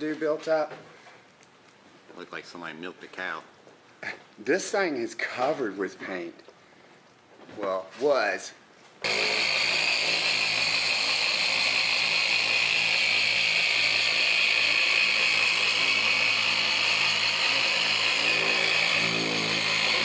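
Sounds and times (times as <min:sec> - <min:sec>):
electric polisher whining: 0:09.0 - 0:20.0.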